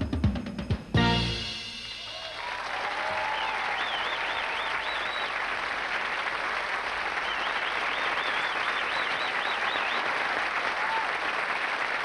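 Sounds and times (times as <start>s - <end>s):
warbling high whistle: 1.6s - 5.3s
audience applauding: 2.0s - 12.0s.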